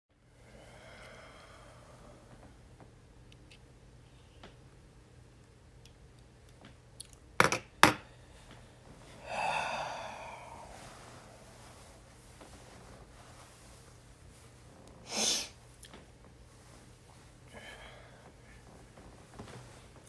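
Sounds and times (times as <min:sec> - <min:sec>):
man sighing: 0:09.2 - 0:10.8
sharp breath out: 0:09.2 - 0:10.8.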